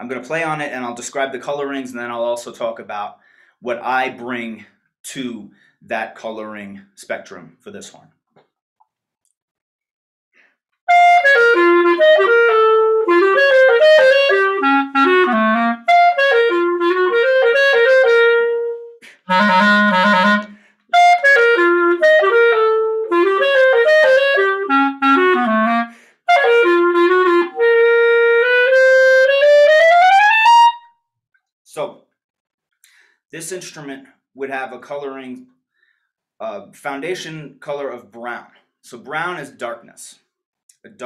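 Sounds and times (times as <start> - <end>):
clarinet melody: 10.9 - 30.9.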